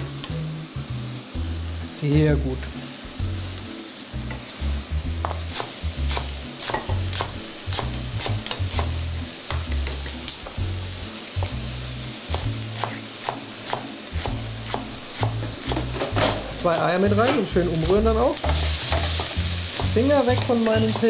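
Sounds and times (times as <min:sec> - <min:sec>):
background music with bass: 0:00.0 - 0:12.9
mushrooms sizzling in a frying pan: 0:00.0 - 0:21.0
utensil knocking against pan: 0:18.4 - 0:21.0.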